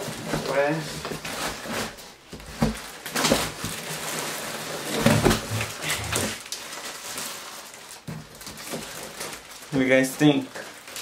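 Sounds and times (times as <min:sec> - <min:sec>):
cardboard and plastic rustling: 0:00.0 - 0:11.0.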